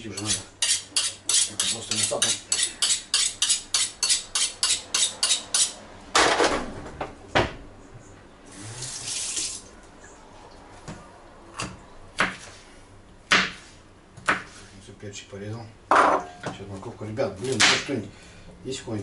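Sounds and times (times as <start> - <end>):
knife sharpening strokes: 0.2 - 5.8.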